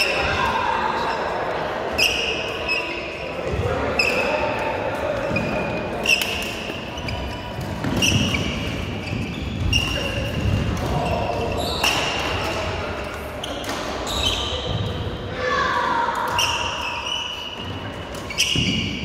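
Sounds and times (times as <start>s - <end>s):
shoes squeaking on court: 1.9s - 12.4s, 13.4s - 15.0s, 16.2s - 19.0s.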